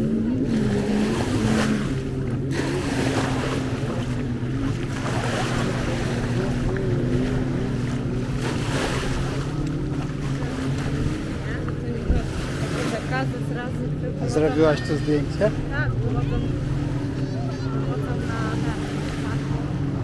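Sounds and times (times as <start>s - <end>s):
motorboat engine running: 0.0s - 20.0s
waves washing on beach: 0.0s - 20.0s.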